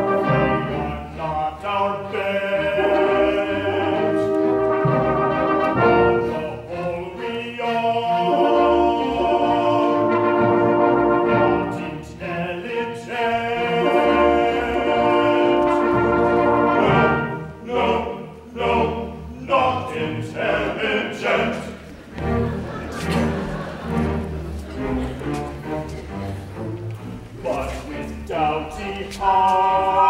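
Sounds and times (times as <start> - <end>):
orchestra accompaniment: 0.0 - 30.0
man singing: 6.2 - 10.4, 27.4 - 30.0.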